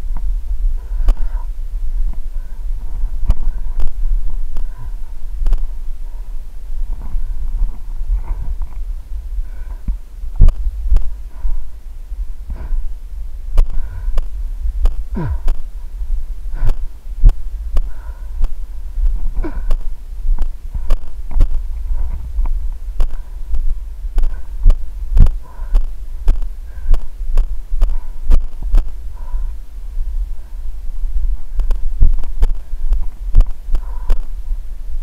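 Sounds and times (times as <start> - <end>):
wind and handling rumble: 0.0 - 35.0.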